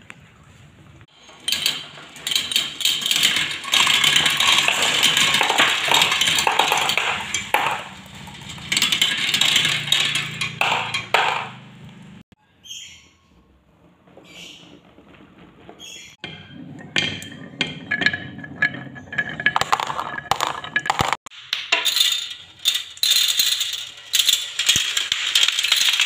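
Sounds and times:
glass marbles rattling on plastic track: 0:01.1 - 0:11.6, 0:15.8 - 0:26.0.

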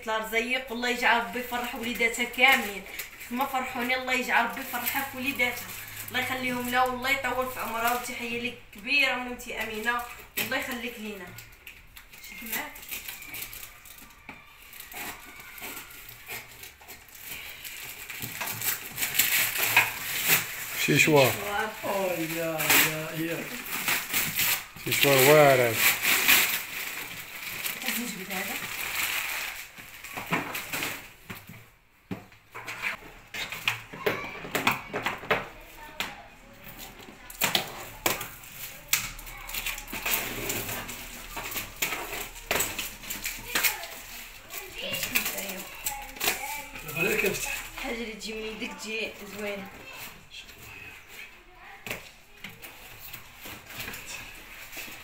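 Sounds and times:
packaging crinkling: 0:09.7 - 0:31.3, 0:36.8 - 0:47.9
scissors snipping plastic: 0:11.3 - 0:21.3
cardboard scraping and rustling: 0:36.7 - 0:48.0, 0:49.3 - 0:55.0.

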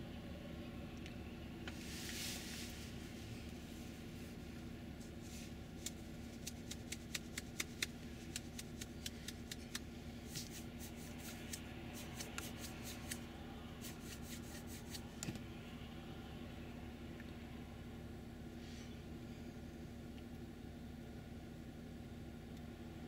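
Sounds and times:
combine harvester engine drone: 0:00.0 - 0:23.0
sharp irregular clicks: 0:05.8 - 0:09.8.

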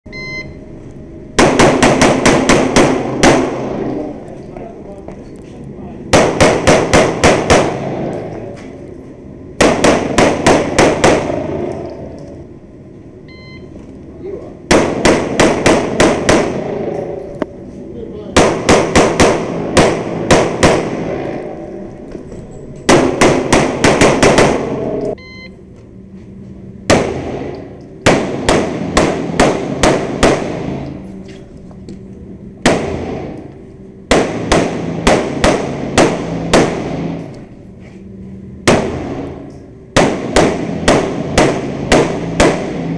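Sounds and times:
pistol shots echoing indoors: 0:01.3 - 0:04.3, 0:06.1 - 0:08.5, 0:09.5 - 0:12.4, 0:14.6 - 0:17.5, 0:18.3 - 0:22.1, 0:22.8 - 0:25.2, 0:26.8 - 0:31.2, 0:32.6 - 0:37.4, 0:38.6 - 0:42.9.

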